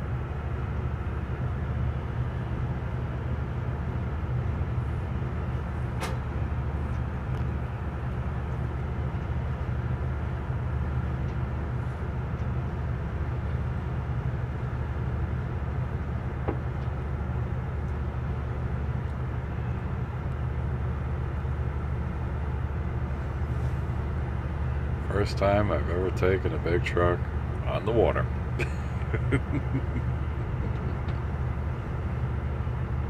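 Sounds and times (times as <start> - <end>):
diesel engine droning: 0.0 - 33.0.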